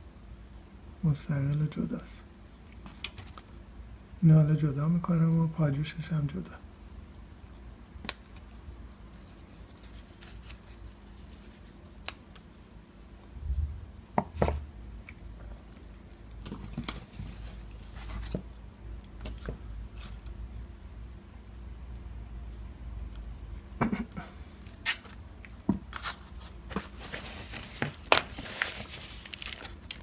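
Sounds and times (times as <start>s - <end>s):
potting soil and leaves rustling: 25.9s - 30.0s.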